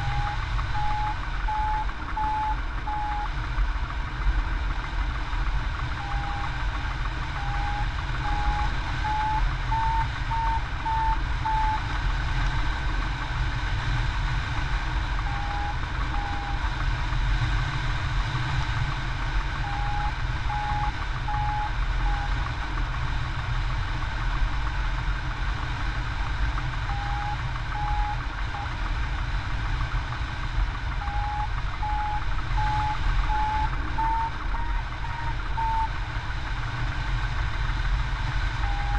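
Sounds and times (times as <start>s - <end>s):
variometer short beeps: 0.0s - 3.3s, 6.0s - 6.6s, 7.3s - 11.8s, 15.2s - 16.7s, 19.6s - 22.4s, 26.9s - 28.7s, 30.9s - 36.0s, 38.6s - 38.9s.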